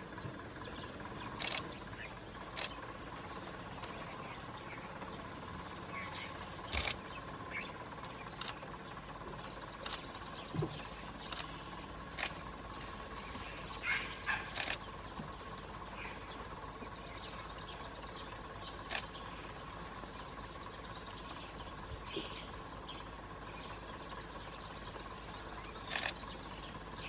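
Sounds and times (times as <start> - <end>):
faint bird chirps: 0.0 - 27.0
faint constant hum: 0.0 - 27.0
outdoor background hiss: 0.0 - 27.0
sharp short clicks: 1.4 - 1.8, 6.7 - 7.0, 14.2 - 14.9, 25.9 - 26.2.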